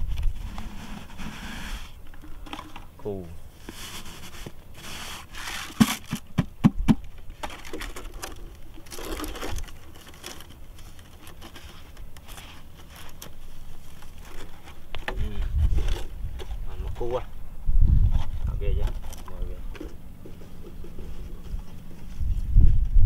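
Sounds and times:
scraping and rustling: 0.0 - 6.5, 7.2 - 17.2, 18.0 - 22.6
plastic bottles knocking and crinkling: 2.1 - 3.0, 5.4 - 16.6.

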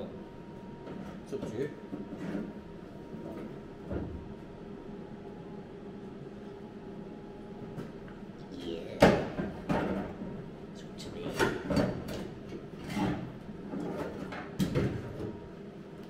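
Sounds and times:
metal clanks and scrapes: 12.8 - 14.5.

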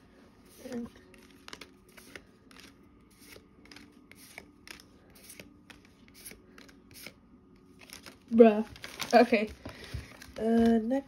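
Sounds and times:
cards being flipped through: 0.5 - 9.2.

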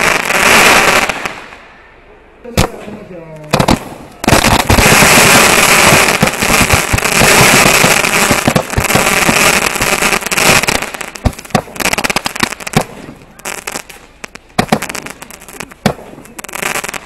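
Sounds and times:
sharp crackling pops: 2.5 - 17.0
firework fountain hissing rush: 3.6 - 17.0.

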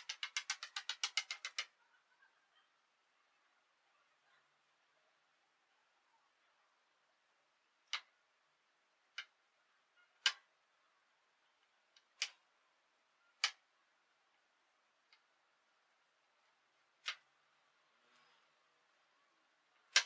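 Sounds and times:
marionette feet tapping floor: 0.0 - 1.7.

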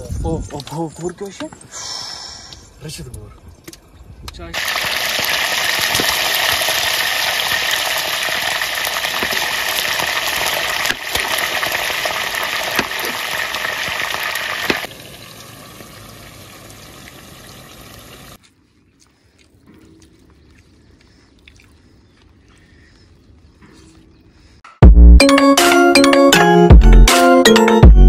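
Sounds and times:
chicken deep-frying in oil: 4.6 - 18.4.

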